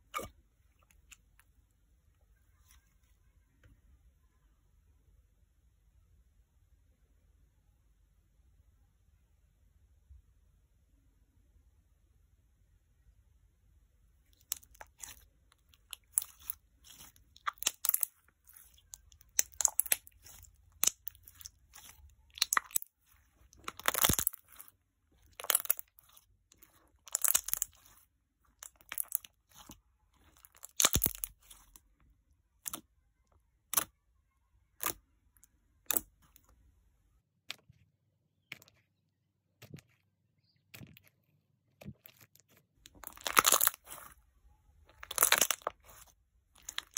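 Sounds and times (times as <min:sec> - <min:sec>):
slime clicking and crackling: 0:14.4 - 0:31.8, 0:41.8 - 0:44.2, 0:44.9 - 0:46.9.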